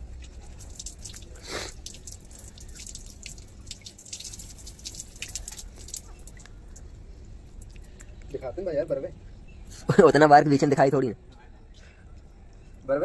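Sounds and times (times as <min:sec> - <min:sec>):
water splashing on concrete floor: 0:00.1 - 0:06.8.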